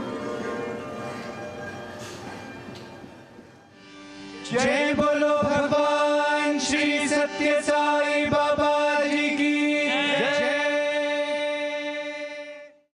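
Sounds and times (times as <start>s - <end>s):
musical accompaniment: 0.0s - 12.8s
devotional chanting: 4.3s - 12.9s.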